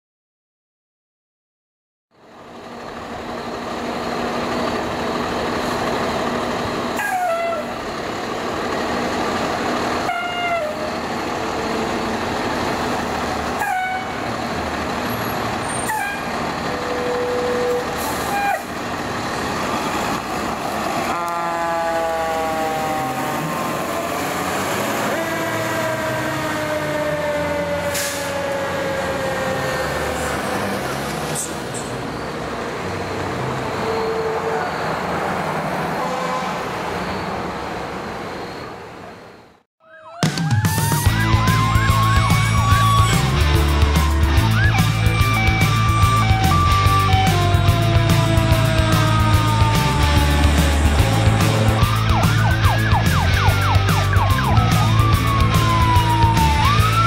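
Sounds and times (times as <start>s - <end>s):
fire engine diesel running: 2.2s - 35.9s, 40.8s - 57.0s
siren winding up and down: 40.2s - 57.0s.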